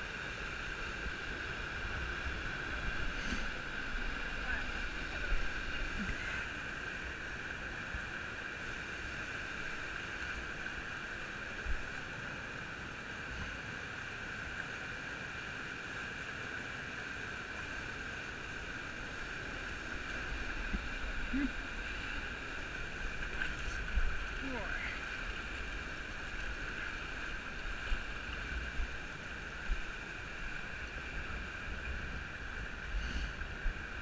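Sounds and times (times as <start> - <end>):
water rushing over rocks: 0.0 - 34.0.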